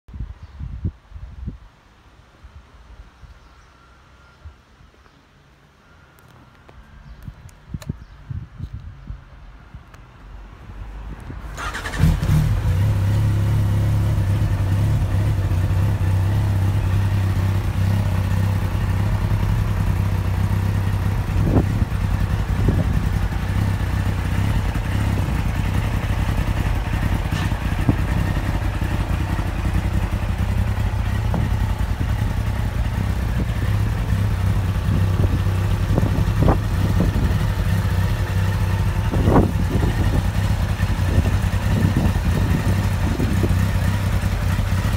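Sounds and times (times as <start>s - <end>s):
motorcycle engine starting and idling: 11.2s - 44.9s.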